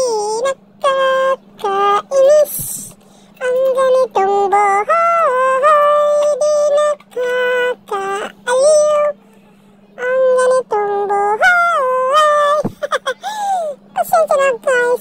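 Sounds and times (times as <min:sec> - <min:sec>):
high sung vocal: 0:00.0 - 0:15.0.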